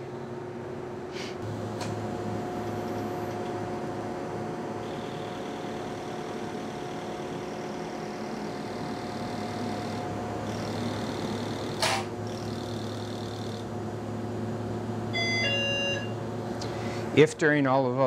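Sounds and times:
steady electrical hum: 0:00.0 - 0:18.0
faint high whine: 0:04.8 - 0:13.6.

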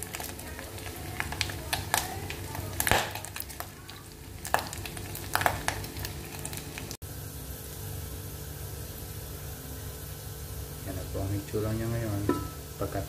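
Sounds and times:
oil popping and spattering: 0:00.0 - 0:07.0
meat sizzling in hot oil: 0:00.0 - 0:13.0.

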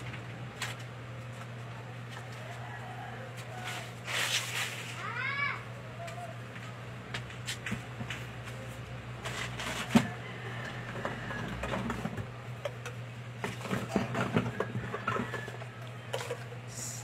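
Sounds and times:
steady low hum: 0:00.0 - 0:17.0
metal cans knocking and clicking: 0:10.9 - 0:16.8.

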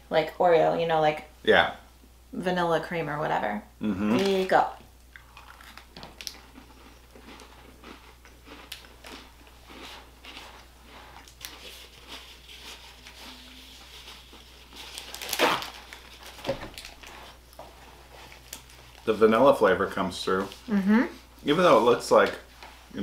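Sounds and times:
crunching and chewing cookies: 0:05.1 - 0:20.7
paper towel tearing: 0:11.4 - 0:17.4.

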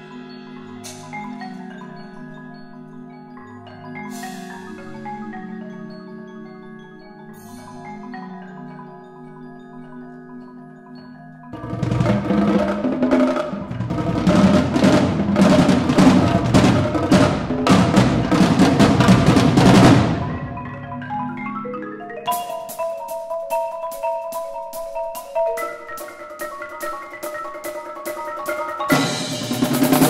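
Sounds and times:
marimba: 0:00.0 - 0:30.0
drums: 0:00.8 - 0:01.6, 0:11.6 - 0:21.4, 0:22.2 - 0:30.0.

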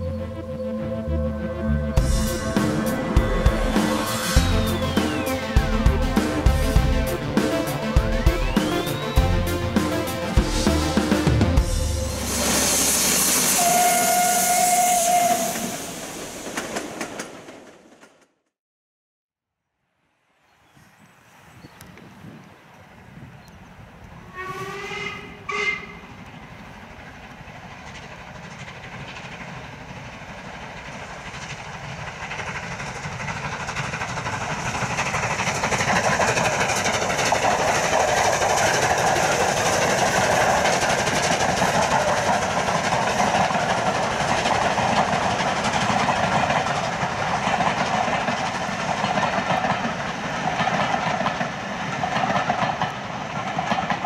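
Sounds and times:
steam locomotive whistle: 0:02.0 - 0:16.0, 0:24.2 - 0:26.2
steam train exhaust: 0:02.0 - 0:17.2, 0:24.1 - 0:54.0
train wheels on rails: 0:02.0 - 0:18.4, 0:21.9 - 0:54.0.

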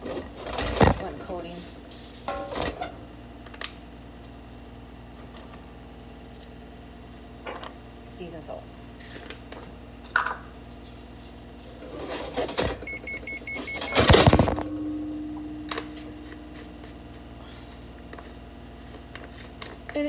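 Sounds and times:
low hum: 0:12.0 - 0:19.3
short electronic beeps: 0:12.9 - 0:14.1.

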